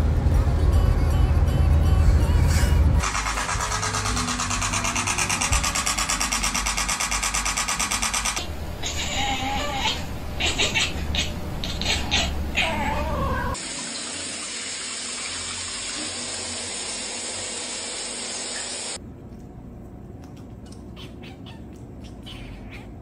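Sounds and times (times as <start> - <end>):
shower head spraying water: 3.0 - 8.4, 13.6 - 19.0
cat calling: 8.8 - 13.6, 20.7 - 23.0.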